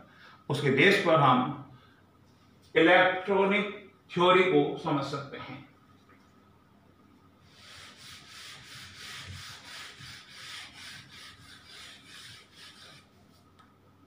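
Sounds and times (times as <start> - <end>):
duster scrubbing whiteboard: 7.4 - 13.5.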